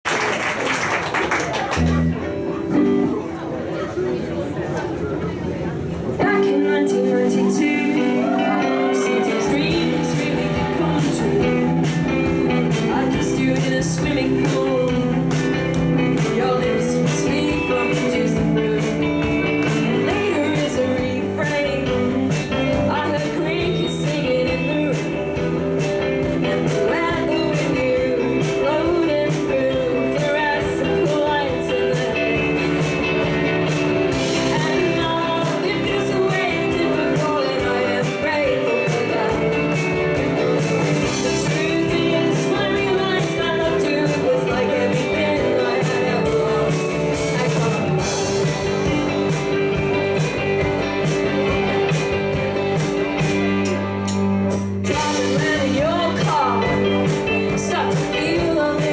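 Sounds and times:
live indie pop band: 0:00.1 - 0:58.9
woman singing: 0:06.2 - 0:49.1, 0:54.8 - 0:58.9.

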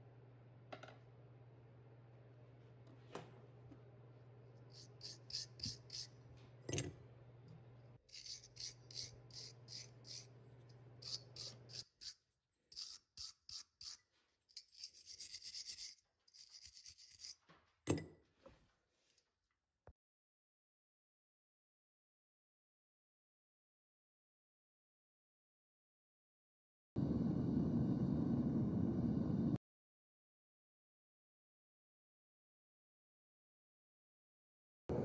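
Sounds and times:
metal scraping in hands: 0:08.0 - 0:17.5
low steady hum: 0:27.0 - 0:29.6.

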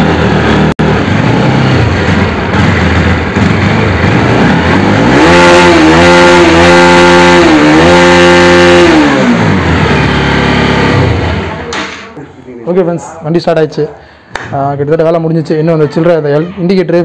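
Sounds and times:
motorcycle engine revving: 0:00.0 - 0:12.1.

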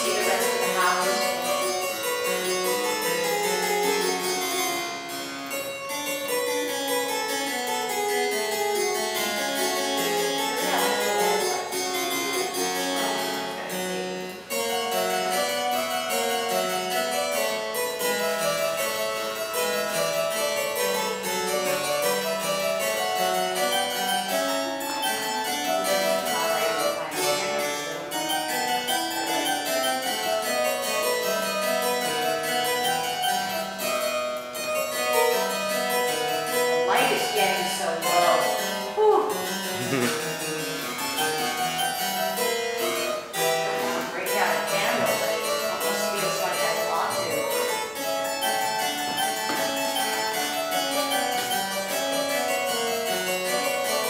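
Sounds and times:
spinet playing short notes: 0:39.1 - 0:41.9.

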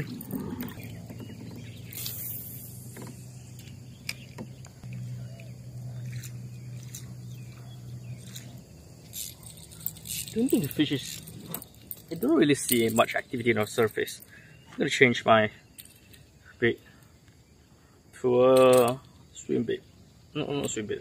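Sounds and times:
steady low hum: 0:00.0 - 0:18.3
fishing line hissing off reel: 0:01.6 - 0:07.1, 0:08.2 - 0:12.0.

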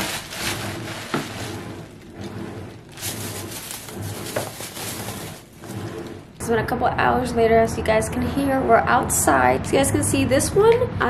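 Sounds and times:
bubble wrap and plastic crinkling: 0:00.0 - 0:06.4.

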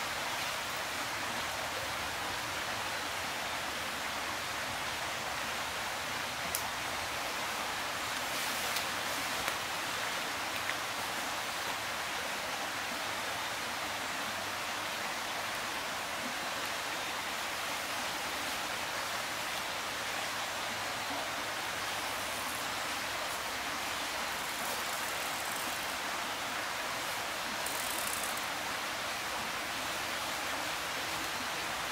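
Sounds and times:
faint ticks: 0:06.5 - 0:06.7, 0:24.3 - 0:25.9, 0:27.6 - 0:28.5.

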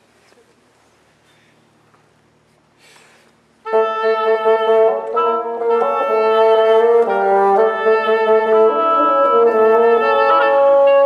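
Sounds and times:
bassoon low notes: 0:03.6 - 0:11.0
oboe melody: 0:03.6 - 0:11.0.

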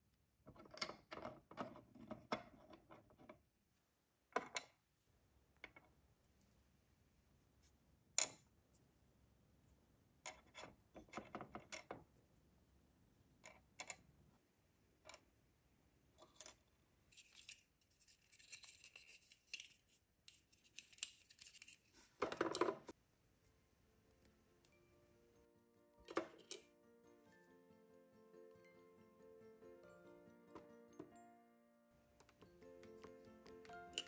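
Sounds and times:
handling rustle: 0:17.1 - 0:22.2.

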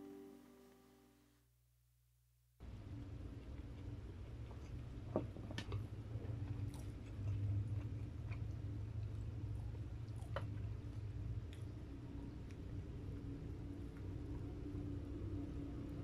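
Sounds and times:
chewing crispy fried chicken: 0:03.0 - 0:14.9.

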